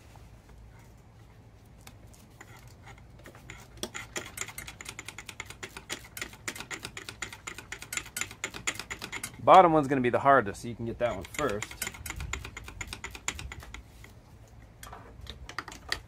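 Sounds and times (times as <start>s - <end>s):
hand ratchet clicking: 3.5s - 9.4s, 11.0s - 13.8s.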